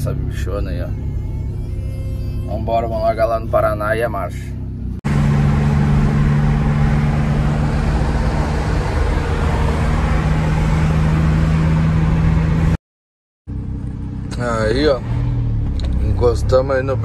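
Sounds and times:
engine drone: 0.0s - 12.8s
tyre and road noise: 0.0s - 12.8s.

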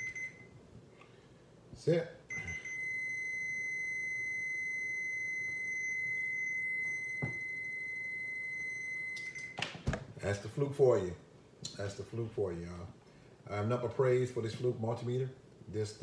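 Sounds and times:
multimeter high beep: 0.0s - 0.5s, 2.3s - 9.6s.

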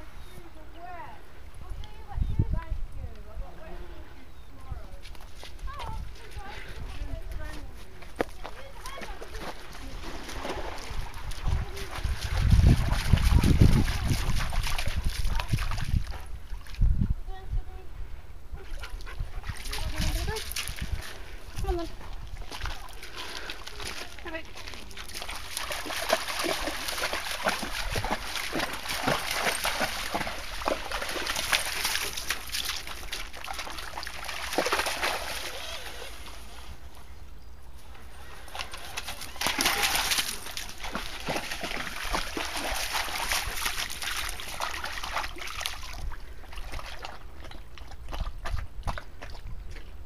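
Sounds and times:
dog splashing through water: 8.6s - 16.8s, 18.6s - 36.4s, 38.2s - 49.9s
stream trickling: 18.8s - 50.0s.

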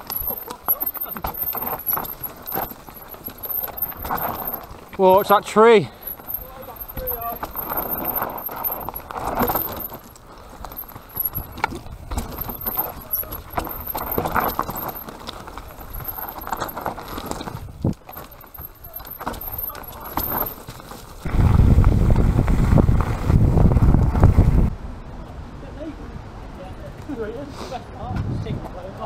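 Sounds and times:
bike chain and frame clattering: 0.0s - 21.6s
tyres crunching over stones: 0.0s - 22.0s
wind rumble on microphone: 21.2s - 25.1s, 28.0s - 29.0s.

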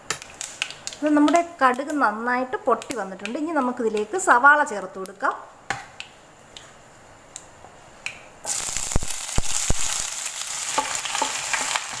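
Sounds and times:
hot oil popping: 0.0s - 2.0s, 8.4s - 12.0s
onions sizzling in a pan: 8.4s - 12.0s.

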